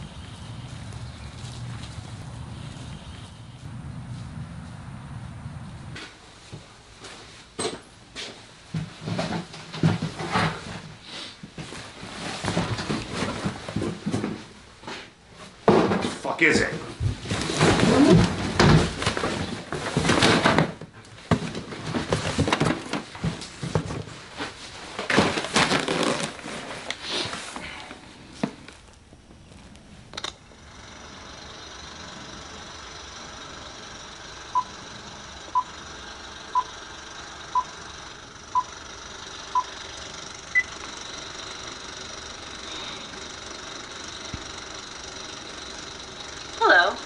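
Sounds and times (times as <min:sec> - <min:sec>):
electronic hum: 0:29.3 - 0:47.0
device beeping: 0:34.5 - 0:34.8, 0:35.5 - 0:35.8, 0:36.5 - 0:36.8, 0:37.5 - 0:37.8, 0:38.5 - 0:38.8, 0:39.5 - 0:39.8, 0:40.5 - 0:40.8.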